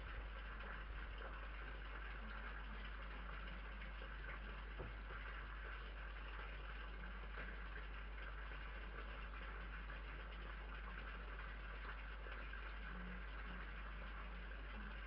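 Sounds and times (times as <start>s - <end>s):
low steady hum and hiss: 0.0s - 15.0s.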